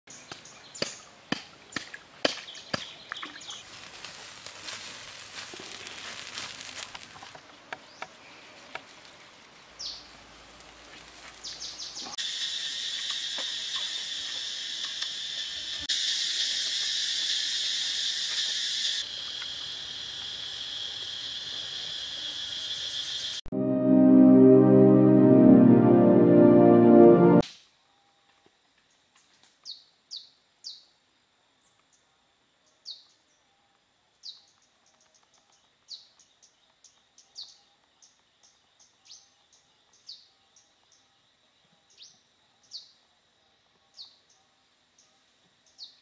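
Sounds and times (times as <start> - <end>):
insects chorus drone: 11.4 - 23.5, 30.1 - 46.0.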